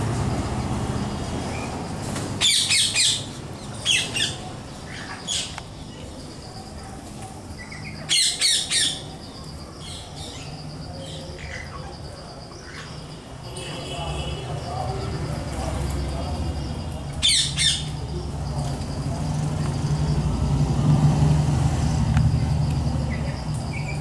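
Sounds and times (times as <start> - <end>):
parakeets screeching: 1.0 - 6.7, 7.5 - 20.0.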